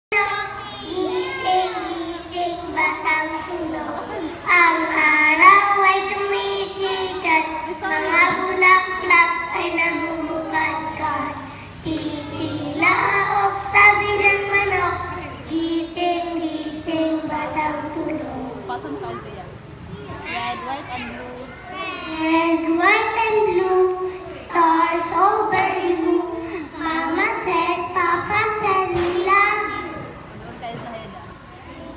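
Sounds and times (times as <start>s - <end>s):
girls singing together: 0.1s - 18.2s.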